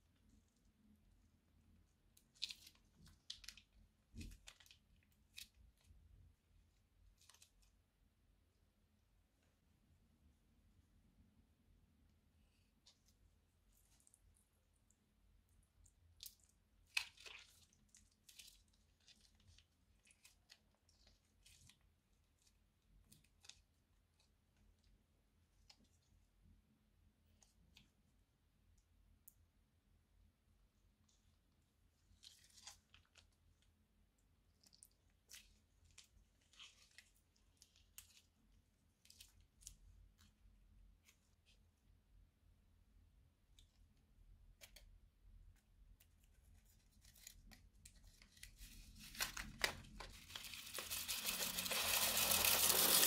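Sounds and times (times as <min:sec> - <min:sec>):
slime squelching: 0:12.5 - 0:24.8, 0:31.0 - 0:41.6
plastic bag crinkling: 0:48.3 - 0:53.0.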